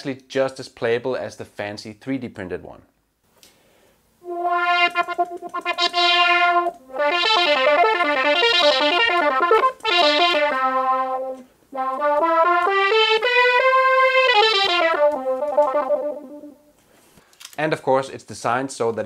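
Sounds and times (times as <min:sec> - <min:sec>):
breaths: 0:03.4 - 0:04.1, 0:16.8 - 0:17.6
bright synthesizer melody: 0:04.2 - 0:16.6.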